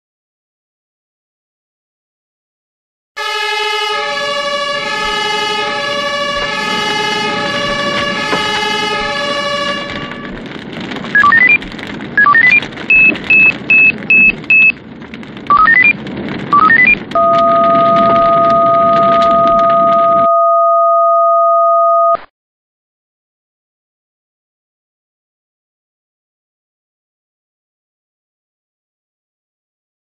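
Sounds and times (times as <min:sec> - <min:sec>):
electronic alert beeps: 0:11.2 - 0:11.6, 0:12.2 - 0:14.8, 0:15.5 - 0:16.0, 0:16.6 - 0:22.2
long steady electronic tone: 0:16.7 - 0:22.2.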